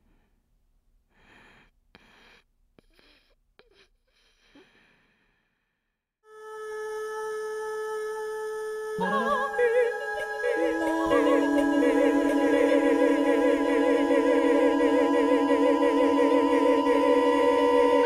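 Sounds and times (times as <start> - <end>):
steady held tone: 6.9 - 18.0
a cappella voices singing: 7.3 - 18.0.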